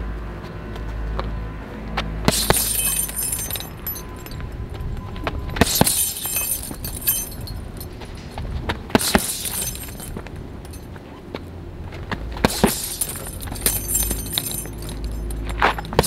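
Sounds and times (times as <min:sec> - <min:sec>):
gloved punches on heavy bag: 0:02.3 - 0:02.8
chains jangling: 0:02.3 - 0:04.4, 0:05.6 - 0:08.3, 0:09.0 - 0:10.9, 0:12.5 - 0:16.0.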